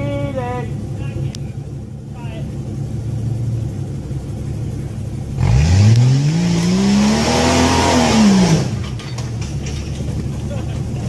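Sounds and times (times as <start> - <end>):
engine revving: 3.0 - 11.0.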